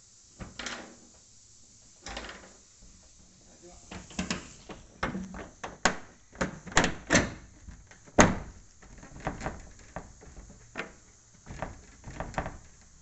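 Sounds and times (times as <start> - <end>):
knocks and thumps on metal roof: 5.0 - 12.9.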